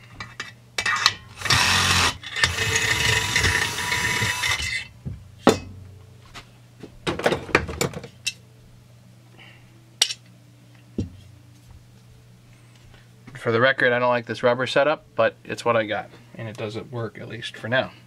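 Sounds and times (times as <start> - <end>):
metal scraping and rattling: 0.0 - 4.9
parts knocking on bench: 5.0 - 5.9, 7.0 - 8.1, 11.0 - 11.2.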